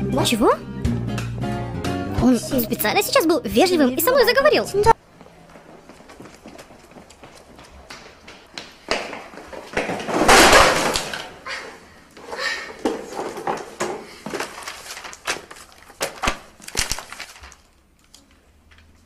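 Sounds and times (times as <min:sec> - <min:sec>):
knocks of notebooks: 0:08.9 - 0:11.4, 0:12.8 - 0:17.5
papers clattering onto floor: 0:08.9 - 0:11.4, 0:12.2 - 0:17.7
paper rustling: 0:12.8 - 0:19.0.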